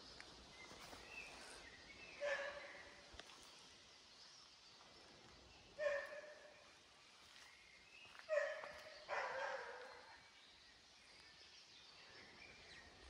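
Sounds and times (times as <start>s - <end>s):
dog barking: 2.2s - 2.8s, 5.8s - 6.4s, 8.3s - 9.9s.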